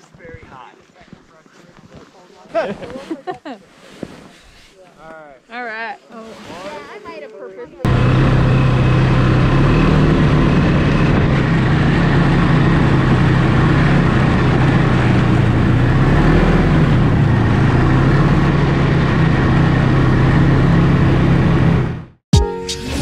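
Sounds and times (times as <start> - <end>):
snowmobile engine running: 7.8 - 22.2.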